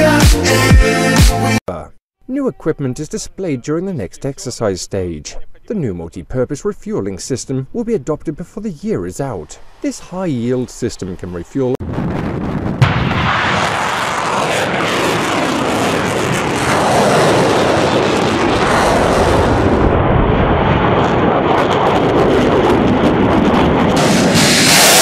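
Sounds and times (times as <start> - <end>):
rocket motors rushing: 24.0 - 25.0.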